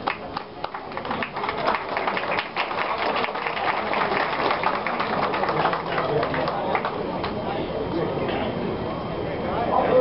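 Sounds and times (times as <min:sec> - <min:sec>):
audience clapping: 0:00.0 - 0:07.4.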